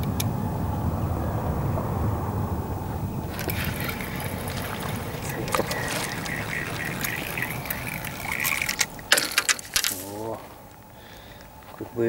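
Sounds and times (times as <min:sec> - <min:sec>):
fish splashing at water surface: 0:03.3 - 0:10.1.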